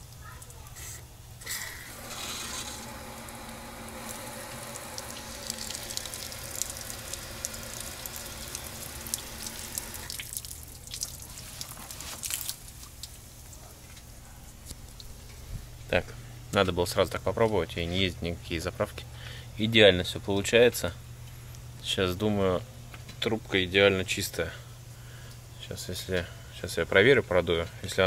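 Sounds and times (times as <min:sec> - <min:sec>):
water rushing and splashing: 0:01.9 - 0:11.0
water drips: 0:02.7 - 0:13.2.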